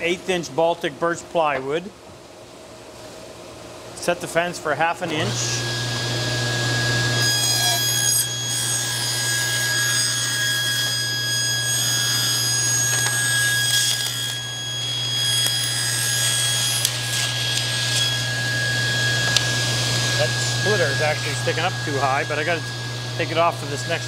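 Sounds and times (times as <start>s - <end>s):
table saw whine: 5.1s - 24.0s
motor hum: 12.4s - 24.0s.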